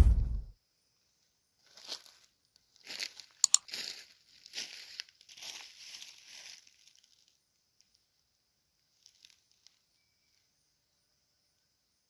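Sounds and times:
crackling rustle: 1.6s - 8.0s, 8.8s - 10.4s.

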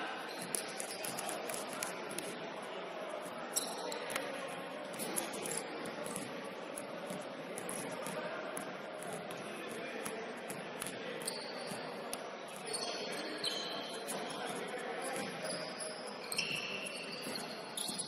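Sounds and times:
shoes squeaking on hardwood: 10.8s - 18.0s.

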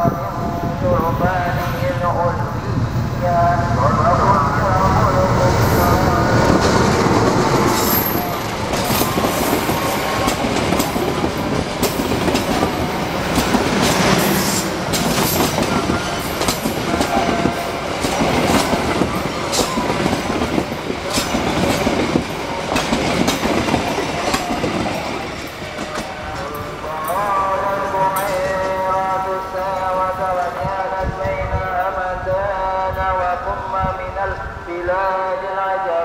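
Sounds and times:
diesel locomotive engine: 0.0s - 36.0s
train wheels clattering over rail joints: 6.5s - 27.2s.

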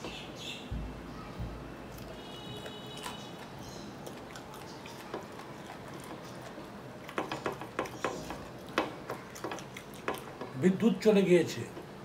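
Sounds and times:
faint chewing: 1.9s - 10.6s.

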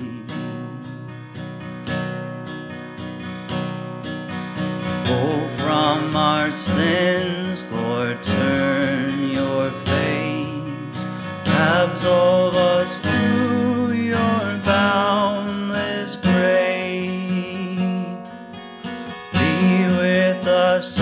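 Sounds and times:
person singing a hymn: 0.0s - 1.1s, 5.0s - 18.2s, 19.3s - 21.0s.

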